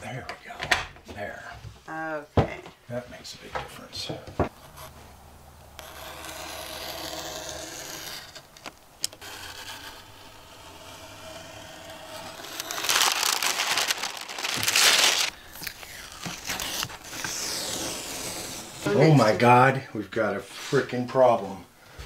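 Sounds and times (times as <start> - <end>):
utility knife cutting paper: 5.8 - 15.2
masking paper crinkling and tearing: 11.5 - 18.9.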